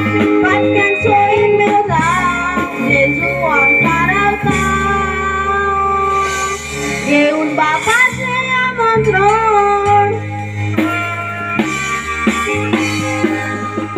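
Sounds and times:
guitar: 0.0 - 13.9.

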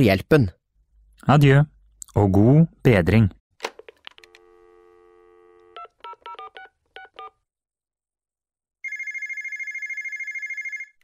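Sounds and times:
telephone dial tone: 4.1 - 7.4, 8.8 - 11.0
electronic phone ring: 4.2 - 7.4, 8.8 - 11.0
touch-tone keypad beeps: 5.8 - 7.4.

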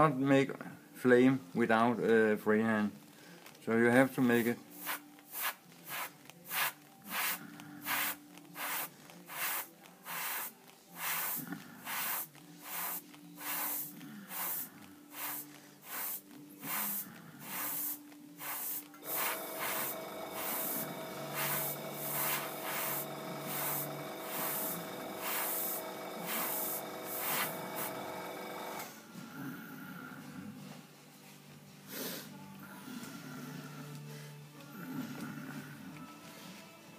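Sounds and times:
steady multi-tone hum: 4.6 - 31.2
airbrush hissing bursts: 4.7 - 28.8.

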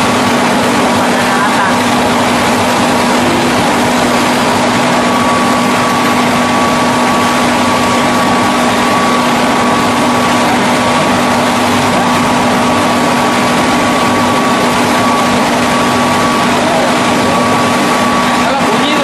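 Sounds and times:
low machine hum: 0.0 - 19.0
veneer lathe running: 0.0 - 19.0
faint high whine: 2.3 - 19.0.

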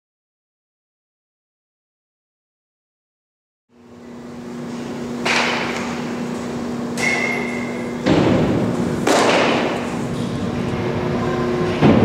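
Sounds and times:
echoing thuds and knocks: 8.0 - 9.9, 11.8 - 12.0.

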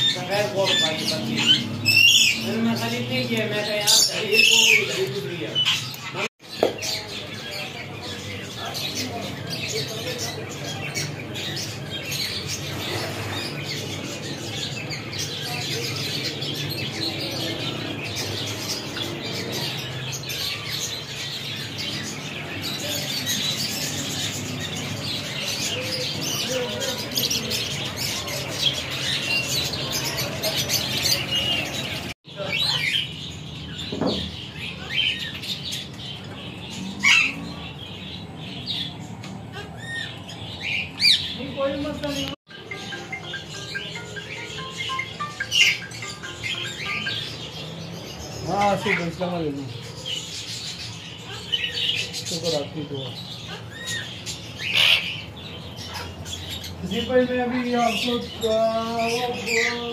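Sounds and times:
small birds chattering: 0.0 - 59.9
sharp parakeet calls: 53.4 - 56.8.

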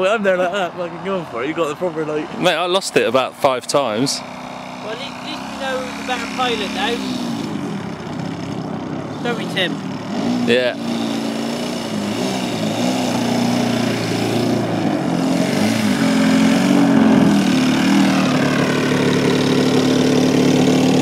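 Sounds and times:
model plane engine running: 4.2 - 8.6, 10.8 - 21.0.

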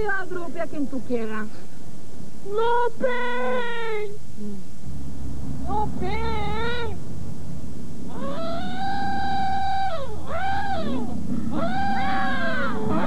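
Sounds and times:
steady low hum: 0.0 - 13.0
howling creature cries: 8.1 - 13.0.

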